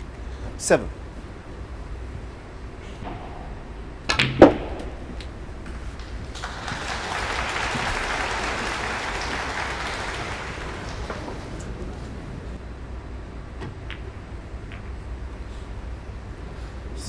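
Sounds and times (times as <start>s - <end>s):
snooker cue strike: 3.0s - 5.8s
snooker balls colliding: 3.0s - 7.1s
audience applauding: 6.0s - 11.8s.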